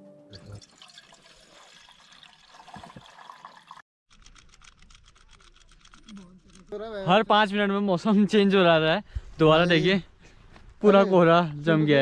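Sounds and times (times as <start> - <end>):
water pouring into metal kettle: 0.3 - 3.8
faint rapid ticking: 4.2 - 7.6.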